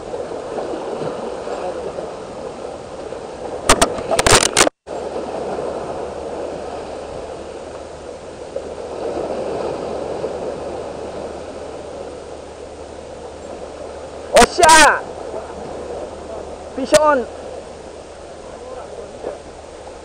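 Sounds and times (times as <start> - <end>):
waves breaking over rocks: 0.0 - 20.0
sharp knocks: 3.7 - 4.7.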